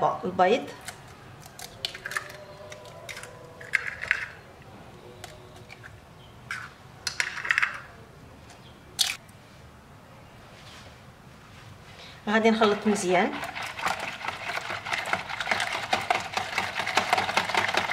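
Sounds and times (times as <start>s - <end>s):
eggshells cracking and snapping: 0.8s - 4.4s.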